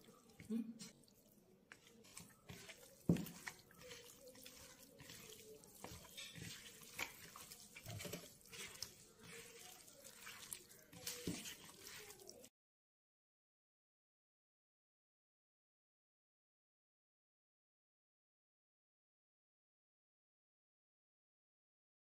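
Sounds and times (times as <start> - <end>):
hand kneading raw chicken: 0.0 - 12.5.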